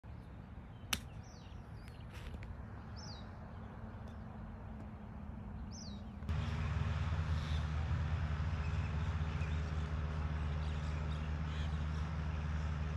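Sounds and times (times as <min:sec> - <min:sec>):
bird chirping: 0:00.0 - 0:06.3
low outdoor hum: 0:00.0 - 0:12.9.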